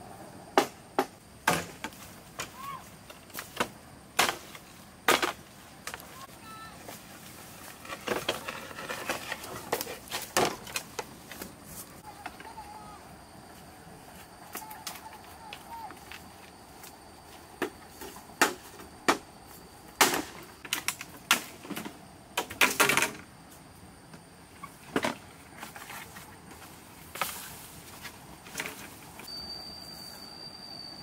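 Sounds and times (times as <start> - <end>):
bamboo poles knocking together: 0.6 - 6.1, 7.8 - 11.5, 20.0 - 23.2.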